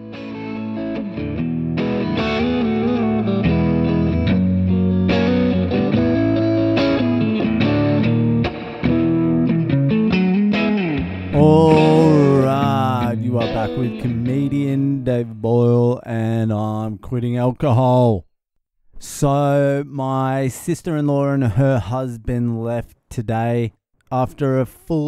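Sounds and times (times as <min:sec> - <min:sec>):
electric guitar theme music: 0:00.0 - 0:14.8.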